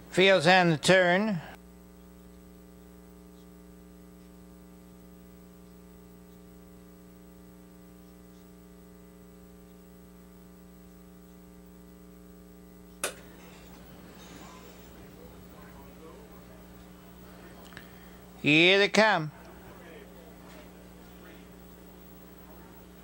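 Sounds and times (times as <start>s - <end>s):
electrical mains hum: 0.0s - 23.0s
sharp click: 12.9s - 13.2s.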